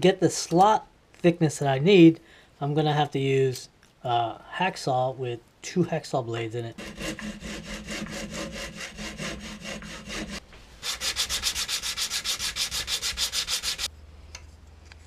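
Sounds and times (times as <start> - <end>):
hacksaw sawing wood: 6.8 - 13.9.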